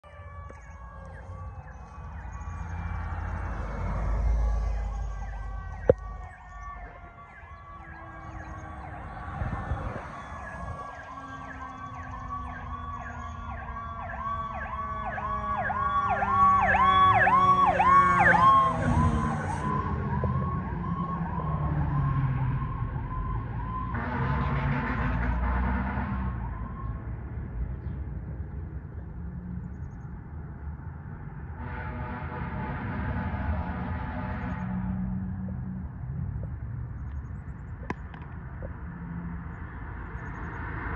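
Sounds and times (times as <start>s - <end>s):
falling siren tone: 0.0s - 24.2s
fire engine siren yelping: 0.0s - 24.9s, 26.0s - 27.3s.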